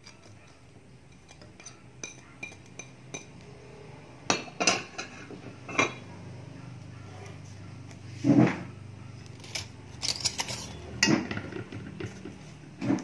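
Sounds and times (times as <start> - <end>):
dishes and cutlery clinking: 0.0 - 3.4, 4.3 - 6.1, 9.3 - 13.0.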